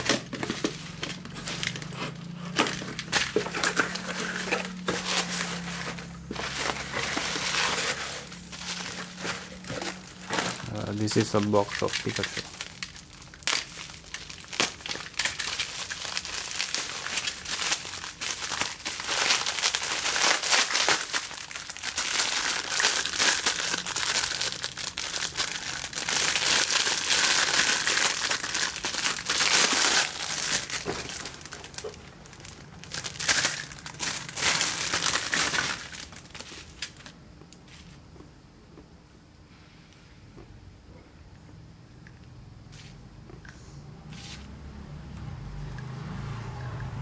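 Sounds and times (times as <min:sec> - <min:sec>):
plastic bag crinkling: 0:00.0 - 0:37.1.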